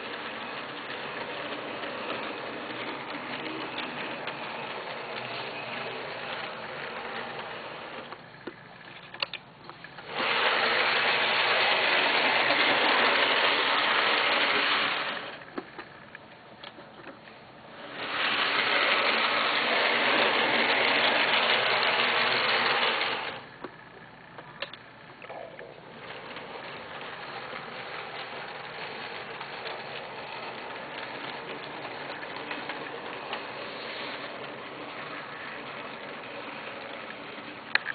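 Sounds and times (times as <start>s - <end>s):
model train motor whirring: 0.0s - 16.2s, 17.6s - 25.1s, 25.8s - 37.9s
clicks from rails: 27.0s - 37.9s.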